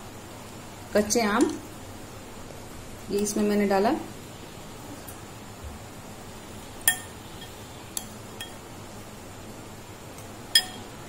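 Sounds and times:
metal spoon clinking on glass bowl: 6.9 - 8.6, 10.5 - 10.9.

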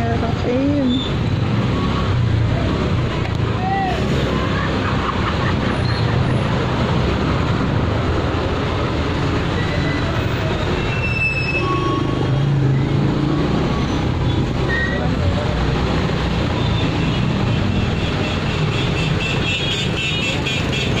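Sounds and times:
short high squeaks: 10.8 - 12.2.

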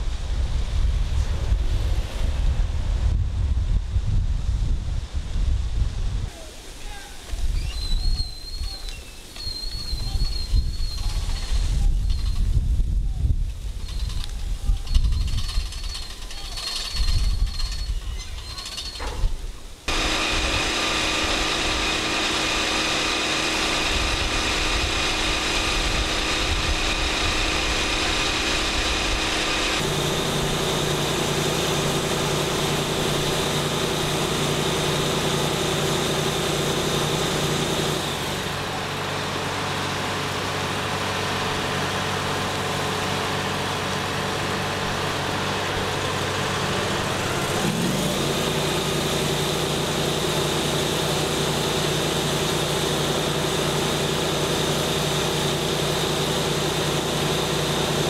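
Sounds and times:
fire truck engine running: 19.8 - 58.0.

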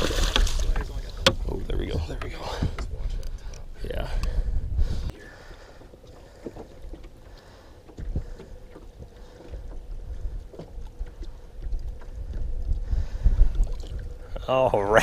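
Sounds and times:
light knocks and splashes: 0.0 - 3.3
water sloshing against boat: 0.0 - 15.0.

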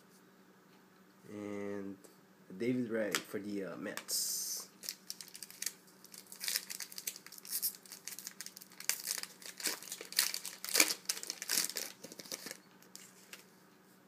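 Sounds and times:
foil wrapper crinkling and tearing: 4.8 - 13.4.

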